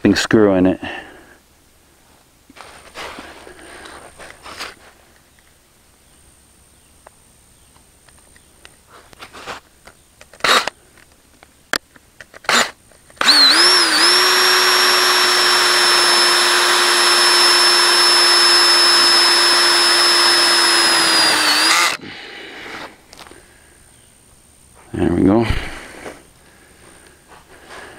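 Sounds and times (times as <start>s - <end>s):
cordless drill driving screw into metal: 10.4s - 10.7s, 12.4s - 22.0s.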